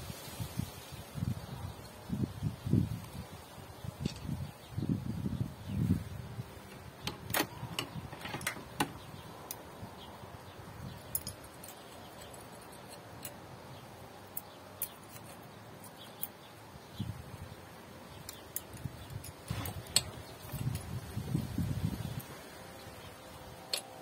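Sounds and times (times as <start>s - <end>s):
hand tools clicking and tapping: 6.7s - 9.7s, 10.9s - 16.5s, 18.1s - 21.1s, 23.6s - 24.0s.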